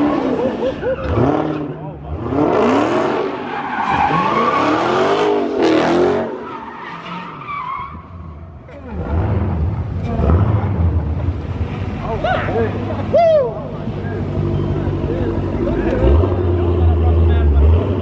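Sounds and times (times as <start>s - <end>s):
car tires squealing: 0.0s - 1.7s, 2.3s - 9.4s
engine revving: 0.0s - 6.4s, 8.8s - 11.7s, 14.1s - 18.0s
deep engine rumble: 8.2s - 18.0s.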